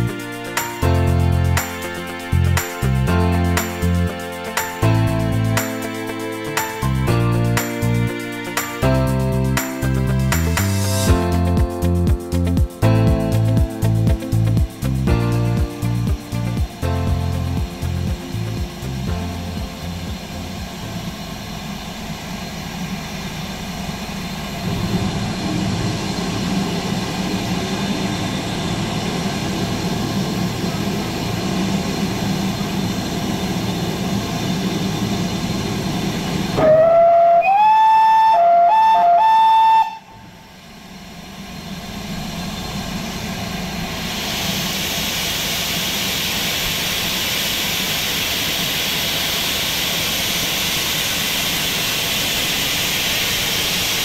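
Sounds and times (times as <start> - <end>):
steady rumble and hiss: 0.0 - 36.7, 39.9 - 54.0
loud steam hiss: 0.0 - 54.0
steam locomotive whistle: 36.5 - 40.7.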